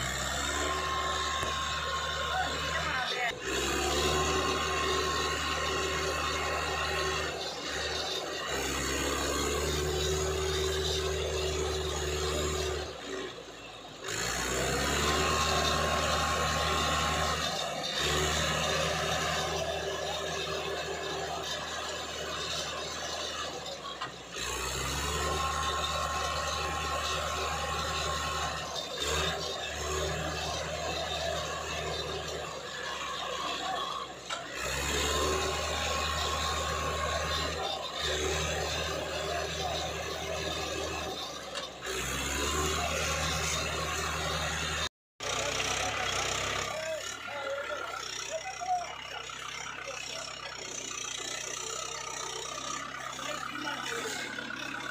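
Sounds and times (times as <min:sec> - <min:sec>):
tractor diesel engine straining: 0:00.0 - 0:54.9.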